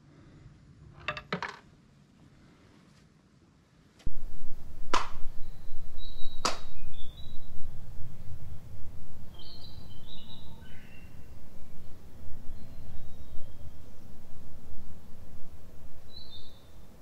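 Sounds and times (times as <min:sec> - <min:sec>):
wind rumble on microphone: 0:04.1 - 0:17.0
small birds chirping: 0:04.5 - 0:17.0
sharp hand claps: 0:04.9 - 0:05.2, 0:06.4 - 0:06.7.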